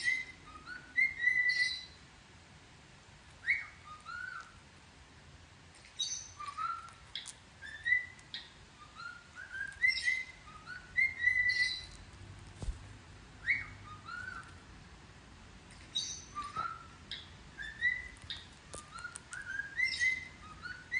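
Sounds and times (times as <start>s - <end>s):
parrot chirps: 0.0s - 2.0s, 3.4s - 4.6s, 5.9s - 12.1s, 13.4s - 14.6s, 15.8s - 20.9s
parrot whistling a tune: 0.0s - 2.0s, 3.4s - 4.5s, 6.0s - 7.0s, 7.6s - 11.9s, 13.4s - 14.5s, 16.0s - 18.2s, 18.9s - 20.9s.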